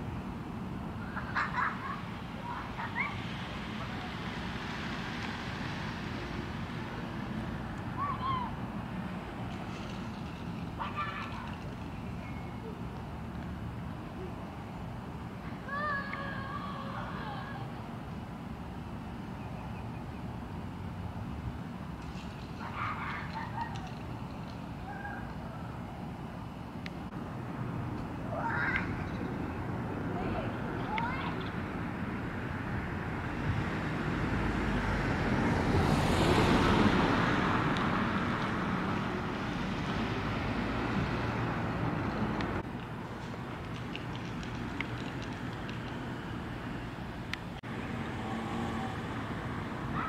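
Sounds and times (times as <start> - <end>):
vehicle passing: 27.2 - 42.7, 43.8 - 50.0.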